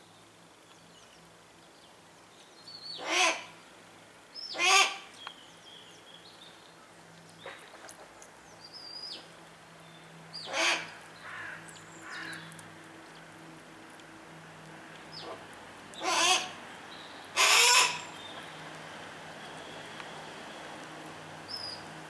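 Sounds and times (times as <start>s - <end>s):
hawk harsh calls: 3.0s - 3.5s, 4.6s - 5.0s, 10.5s - 12.3s, 16.0s - 16.6s, 17.4s - 18.1s.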